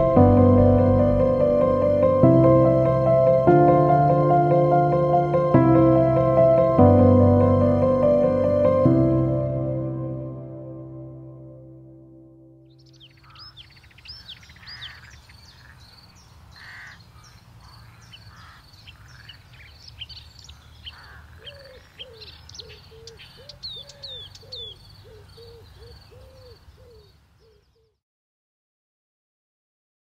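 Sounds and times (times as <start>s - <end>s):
steady low rumble: 0.0s - 10.0s
low repeated bird calls: 12.7s - 28.0s
small birds chirping: 12.7s - 28.0s.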